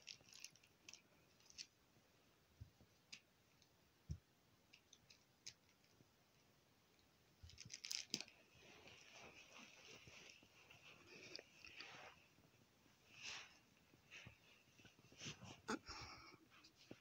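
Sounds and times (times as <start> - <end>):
soft rustling: 7.4 - 17.0.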